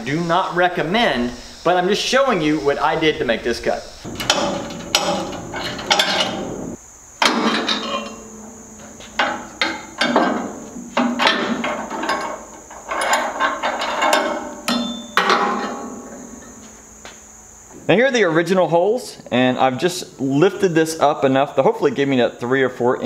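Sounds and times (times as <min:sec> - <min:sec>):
metal clanks and knocks: 0:04.0 - 0:16.8.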